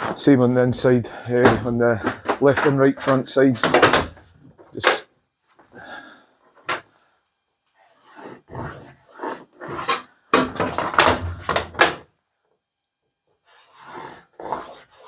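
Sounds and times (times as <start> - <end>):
marker rubbing on metal panel: 8.0 - 10.1, 13.5 - 15.0.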